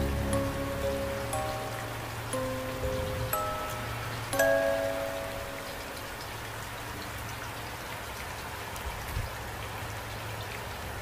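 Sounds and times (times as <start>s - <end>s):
low steady hum: 0.0s - 7.7s
steady rain: 0.0s - 11.0s.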